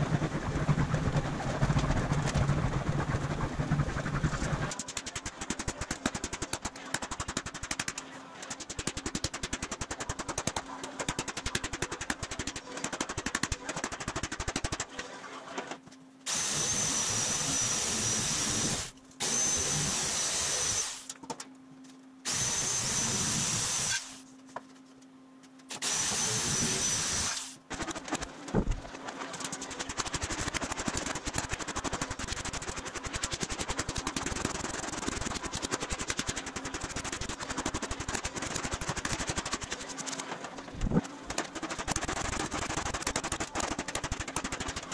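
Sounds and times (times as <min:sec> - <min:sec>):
low steady hum: 0:00.0 - 0:20.1
power tool whining: 0:16.3 - 0:21.1, 0:22.3 - 0:24.2, 0:25.7 - 0:27.6.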